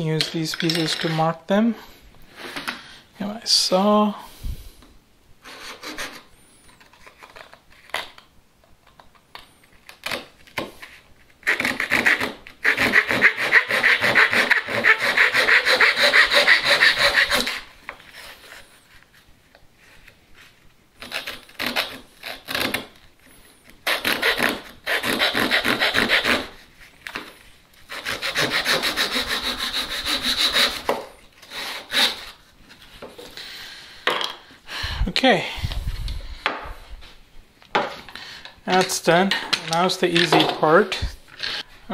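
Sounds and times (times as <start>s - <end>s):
hand saw rasping through wood: 5.5s - 6.2s, 11.5s - 17.7s, 23.9s - 26.5s, 27.9s - 32.4s.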